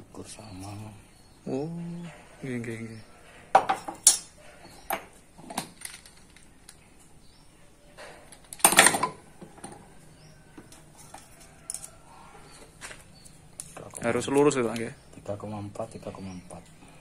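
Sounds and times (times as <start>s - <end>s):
metal parts clicking and clinking: 3.7s - 6.8s, 8.0s - 9.8s, 10.7s - 12.0s.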